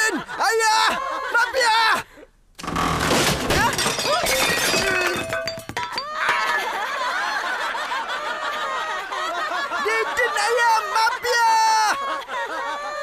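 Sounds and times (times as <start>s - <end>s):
heavy cartoon crash: 2.6s - 5.4s
clattering and crockery breaking: 2.6s - 6.6s.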